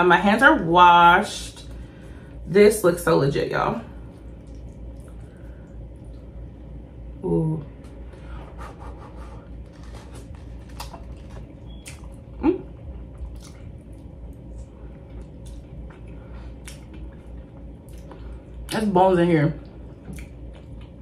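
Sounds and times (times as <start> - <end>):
wet chewing and mouth smacks: 4.3 - 6.3, 9.6 - 12.3, 12.9 - 18.8, 19.9 - 21.0.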